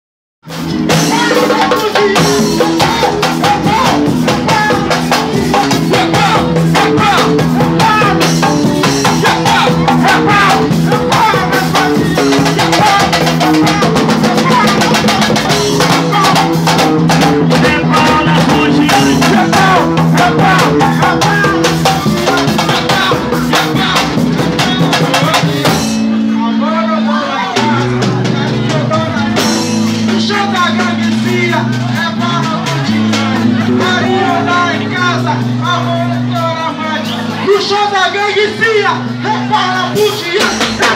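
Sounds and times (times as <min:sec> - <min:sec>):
repeating bass line: 0:00.4 - 0:40.9
fast dance drum beat: 0:00.5 - 0:26.0, 0:38.7 - 0:40.9
person singing: 0:00.5 - 0:37.5.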